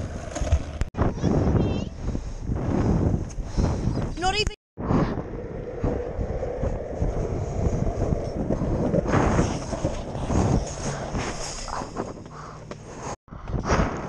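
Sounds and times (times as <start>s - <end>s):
skateboard wheels on concrete: 0.0s - 1.8s, 5.3s - 13.2s
wind buffeting microphone: 1.0s - 12.6s.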